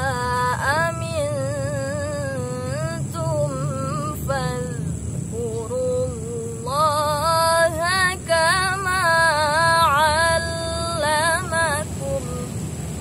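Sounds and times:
woman reciting melodically: 0.0s - 12.6s.

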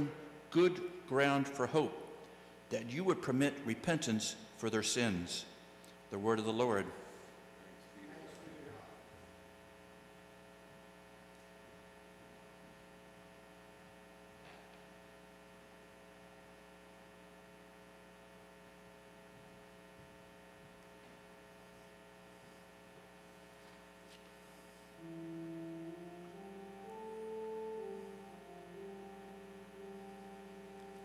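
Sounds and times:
keyboard playing sustained chords: 0.0s - 3.7s, 25.0s - 31.0s
sound system electrical hum: 0.0s - 31.0s.

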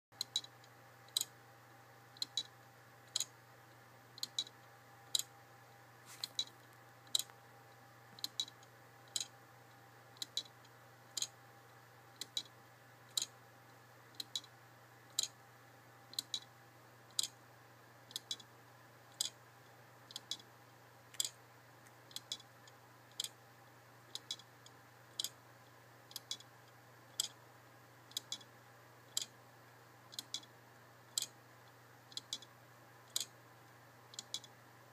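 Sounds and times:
clock ticking: 0.2s - 1.4s, 2.1s - 5.4s, 6.2s - 7.4s, 8.1s - 9.4s, 10.1s - 11.4s, 12.1s - 13.4s, 14.1s - 14.5s, 15.1s - 15.4s, 16.1s - 16.5s, 17.1s - 17.4s, 18.1s - 18.5s, 19.1s - 19.4s, 20.1s - 20.5s, 21.1s - 21.4s, 22.1s - 23.4s, 24.0s - 25.4s, 26.1s - 26.5s, 27.1s - 27.4s, 28.1s - 29.4s, 30.1s - 32.5s, 33.1s - 33.4s, 34.1s - 34.6s.

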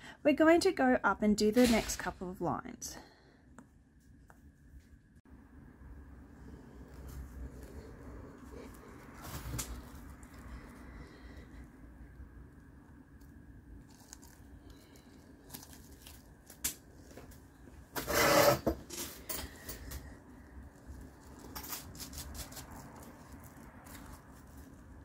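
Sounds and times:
bubble wrap crinkling: 6.8s - 18.0s, 19.4s - 25.0s.

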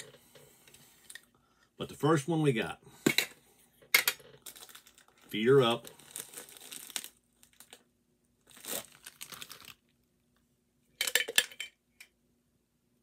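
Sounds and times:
can packaging tearing and crinkling: 4.4s - 7.8s, 8.5s - 9.8s.

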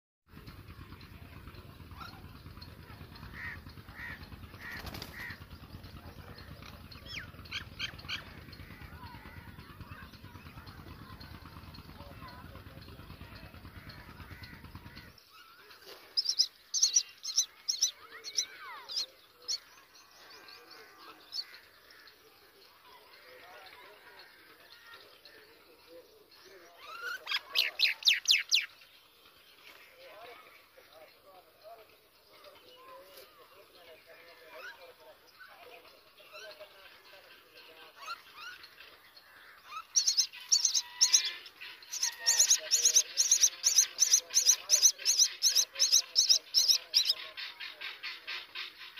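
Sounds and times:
nestlings begging chirps: 16.1s - 21.6s, 38.4s - 48.9s.

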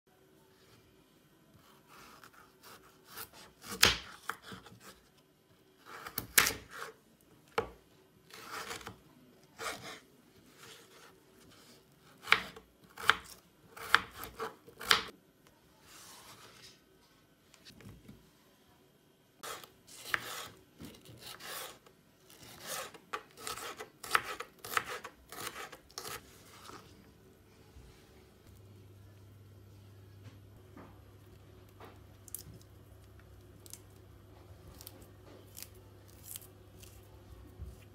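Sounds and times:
knife scraping: 8.3s - 9.0s, 19.4s - 26.9s
knife chopping on wooden board: 12.2s - 15.1s, 22.4s - 26.2s.

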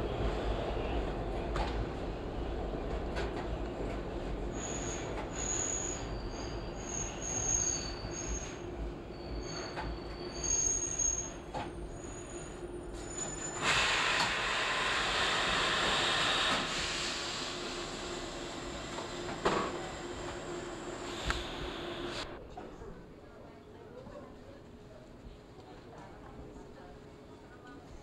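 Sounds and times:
subway train wheel rumble: 0.0s - 28.0s
high-pitched wheel squeal: 4.6s - 11.4s
rushing hiss: 13.6s - 18.2s.

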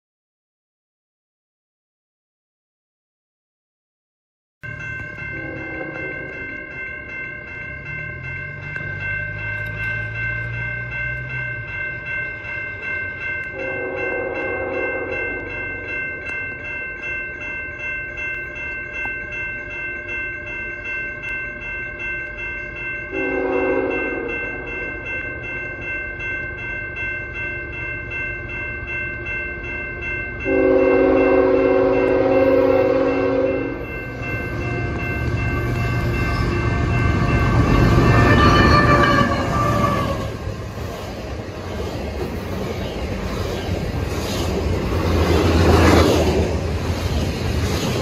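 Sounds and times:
crossing bells ringing: 4.6s - 48.0s
locomotive horn blasts: 5.3s - 6.2s, 13.6s - 15.4s, 23.1s - 24.4s, 30.5s - 35.0s, 35.9s - 40.4s.

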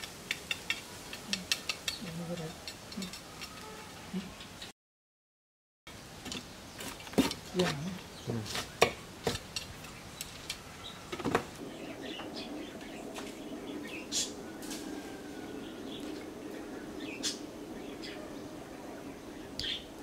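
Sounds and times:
steady low hum: 11.6s - 20.0s.

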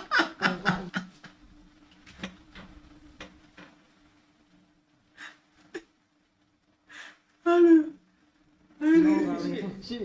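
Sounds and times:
man laughing: 0.0s - 1.2s
faint hum: 0.0s - 10.0s.

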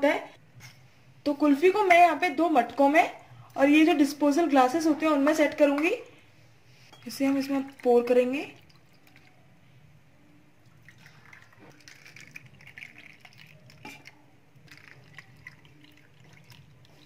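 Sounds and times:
liquid trickling and splashing: 7.6s - 9.4s, 10.7s - 17.0s.

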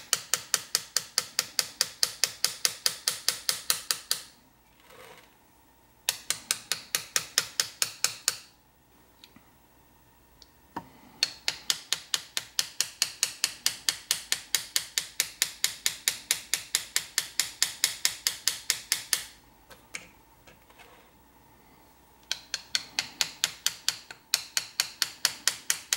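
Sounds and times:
hammer tapping metal chisel: 0.0s - 4.3s, 6.1s - 8.5s, 10.8s - 20.6s, 22.2s - 25.9s.

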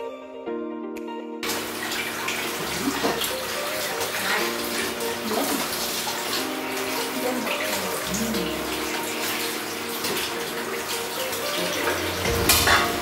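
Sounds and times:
soft instrumental music: 0.0s - 13.0s
running water: 1.4s - 13.0s.

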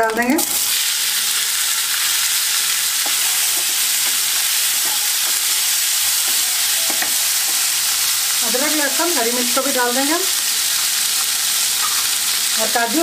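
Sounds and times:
tomatoes sizzling in hot oil: 0.0s - 13.0s.

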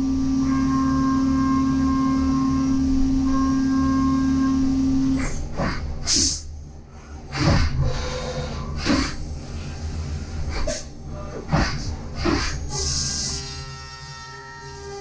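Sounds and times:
machine spindle whining: 0.0s - 5.2s.

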